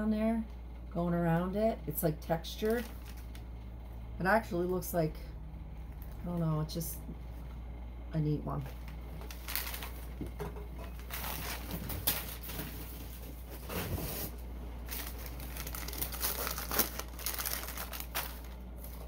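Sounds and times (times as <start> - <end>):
packing wrap rustling: 2.5 - 3.5, 8.8 - 10.2, 10.8 - 19.0.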